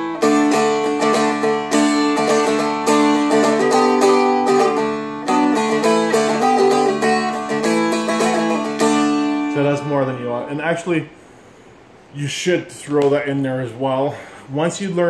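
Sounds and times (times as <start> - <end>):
dulcimer strummed chords: 0.0 - 11.0.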